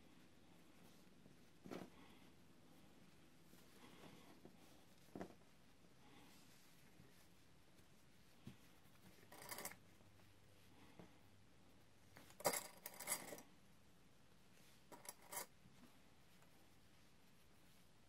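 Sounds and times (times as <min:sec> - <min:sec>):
fabric rustling: 0:00.2 - 0:11.1.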